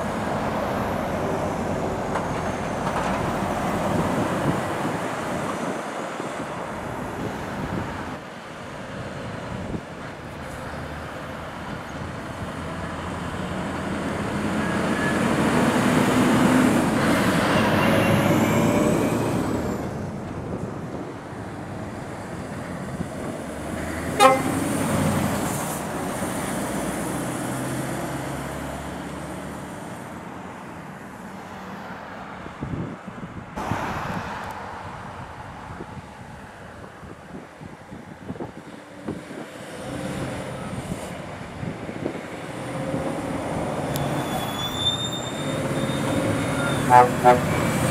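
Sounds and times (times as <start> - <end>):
heavy trucks driving past: 0.0 - 36.9, 38.5 - 47.9
truck horn toot: 24.1 - 24.8, 44.4 - 47.8.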